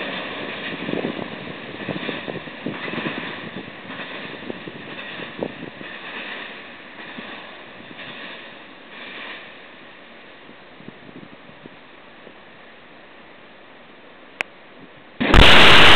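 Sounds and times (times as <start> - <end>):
train wheels clicking over rail joints: 0.0 - 9.9.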